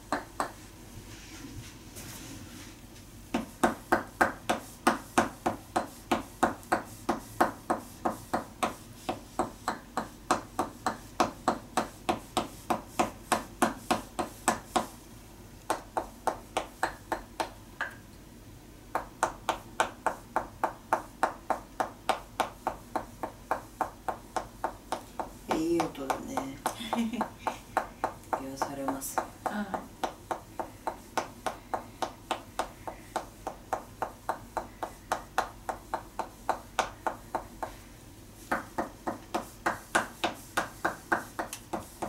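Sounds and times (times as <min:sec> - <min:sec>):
wooden mallet knocking on wood: 0:03.3 - 0:14.9, 0:18.9 - 0:37.8.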